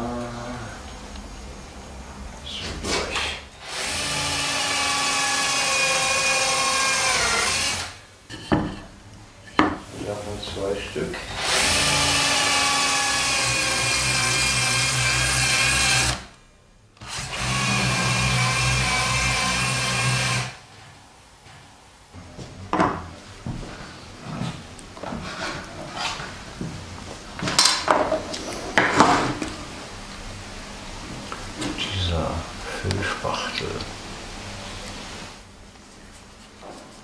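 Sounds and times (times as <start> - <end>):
cordless drill boring wood: 3.6 - 8.0, 11.3 - 16.3, 17.0 - 20.6.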